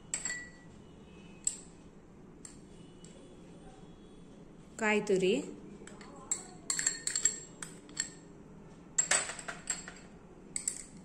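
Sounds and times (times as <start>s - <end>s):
metal spoon clinking on steel: 0.1s - 0.6s, 5.9s - 8.3s, 9.0s - 11.0s.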